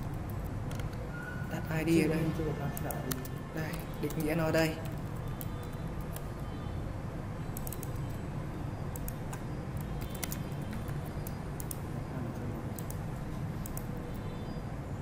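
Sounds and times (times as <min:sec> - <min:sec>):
computer keyboard typing clicks: 0:00.0 - 0:01.1, 0:02.7 - 0:06.4, 0:07.5 - 0:08.2, 0:08.9 - 0:11.9, 0:12.6 - 0:14.0
low background hum: 0:00.0 - 0:15.0.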